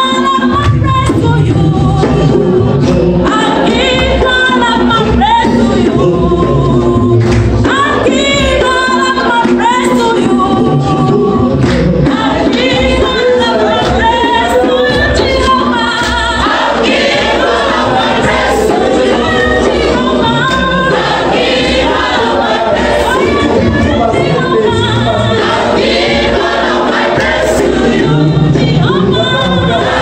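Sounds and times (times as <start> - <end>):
choir singing gospel song: 1.0 - 30.0.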